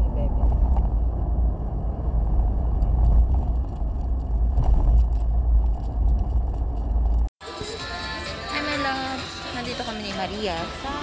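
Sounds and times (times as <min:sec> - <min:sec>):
car cabin engine and road noise: 0:00.0 - 0:07.6.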